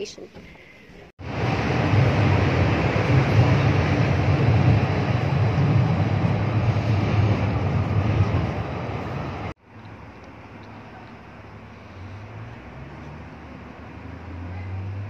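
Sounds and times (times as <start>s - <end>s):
vehicle rumble: 0.3s - 15.0s
wind on microphone: 1.2s - 9.5s
faint low engine hum: 9.0s - 15.0s.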